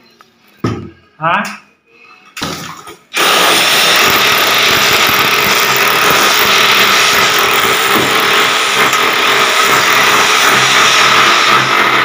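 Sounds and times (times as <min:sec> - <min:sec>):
electric drill boring into wall: 0:03.2 - 0:12.0.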